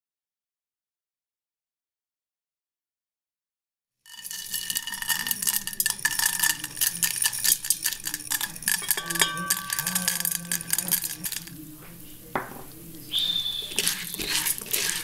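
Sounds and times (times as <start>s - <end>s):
ringing clinks: 4.1s - 11.6s
popcorn kernels rattling into pot: 4.1s - 11.8s, 13.3s - 15.0s.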